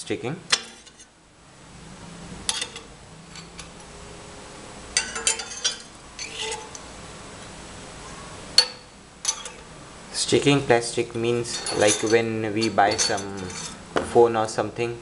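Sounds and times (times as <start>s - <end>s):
metal nozzles clinking: 2.5s - 3.9s, 5.0s - 6.9s, 8.6s - 9.7s, 10.4s - 13.9s.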